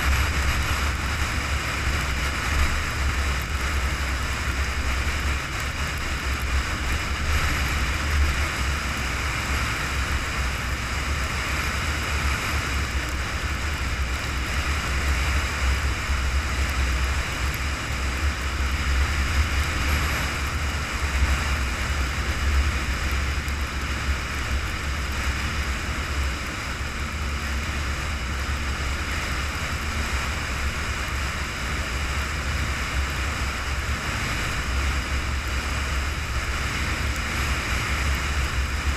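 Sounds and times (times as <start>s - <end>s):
engine and tyres rumbling: 0.0s - 38.9s
wind and road noise hiss: 0.0s - 38.9s.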